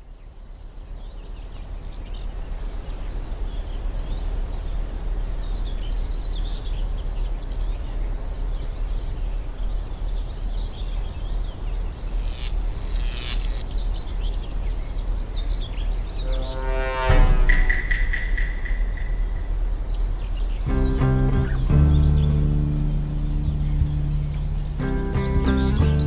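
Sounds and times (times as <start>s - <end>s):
birds chirping: 10.4s - 16.5s.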